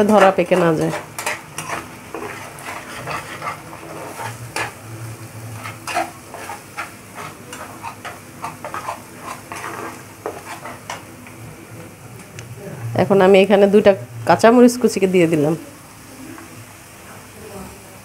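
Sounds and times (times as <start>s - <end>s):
spatula scraping frying pan: 0.0s - 11.2s
food sizzling: 0.0s - 18.0s.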